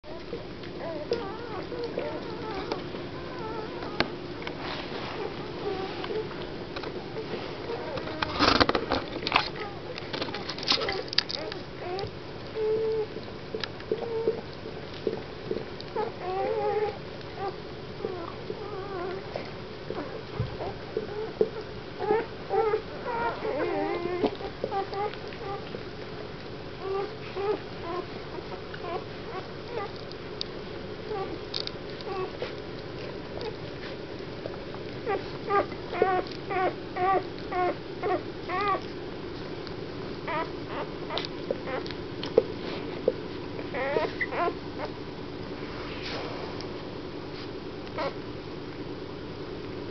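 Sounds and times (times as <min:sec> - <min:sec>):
puppies squeaking and whimpering: 0:00.1 - 0:13.2, 0:14.0 - 0:14.4, 0:15.9 - 0:25.8, 0:26.8 - 0:30.0, 0:31.1 - 0:31.4, 0:32.0 - 0:32.5, 0:35.0 - 0:38.9, 0:40.2 - 0:42.0, 0:43.6 - 0:45.0, 0:48.0 - 0:48.2.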